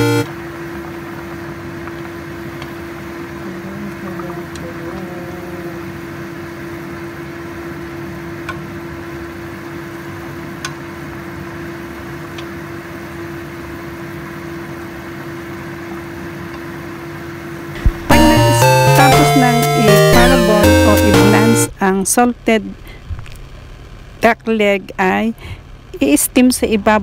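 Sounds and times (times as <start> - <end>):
water boiling in a pan: 0.5 - 4.6.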